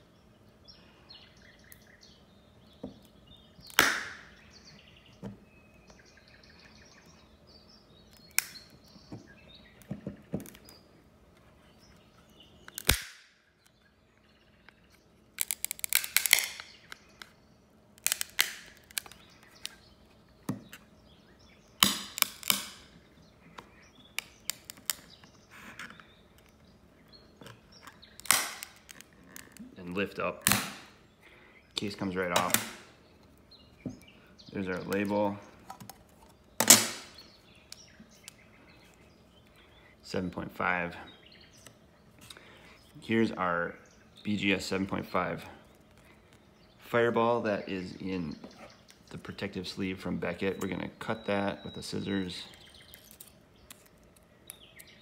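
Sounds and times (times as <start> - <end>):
plastic case cracking and snapping: 12.6 - 13.8, 15.4 - 17.4, 18.0 - 19.8, 21.8 - 22.9, 24.2 - 25.2, 27.4 - 29.6, 32.4 - 32.8, 36.6 - 38.4.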